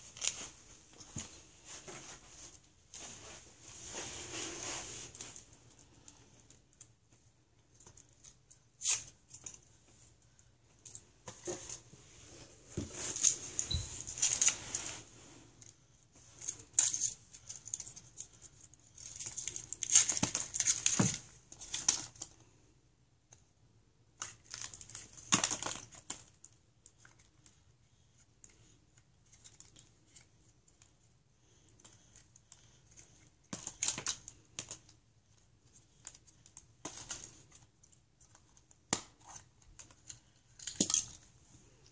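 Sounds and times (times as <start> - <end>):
foil wrapper crinkling and tearing: 19.0 - 22.3.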